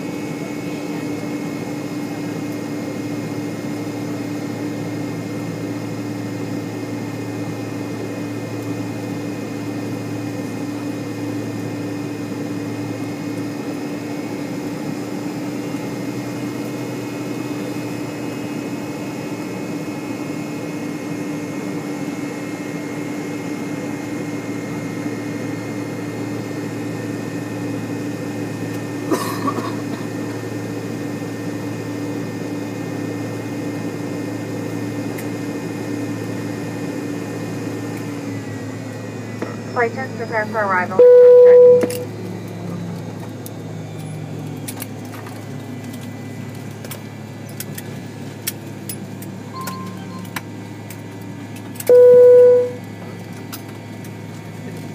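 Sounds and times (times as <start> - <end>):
aircraft cabin hum: 39.5 - 43.4.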